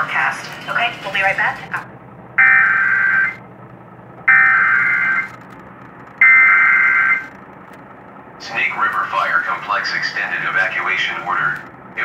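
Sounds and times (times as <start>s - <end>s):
buzzing digital data tone: 2.4s - 3.4s, 4.3s - 5.4s, 6.2s - 7.4s.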